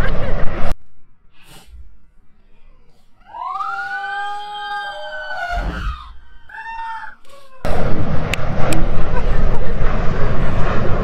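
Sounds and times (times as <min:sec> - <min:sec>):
person screaming: 0:03.2 - 0:07.7.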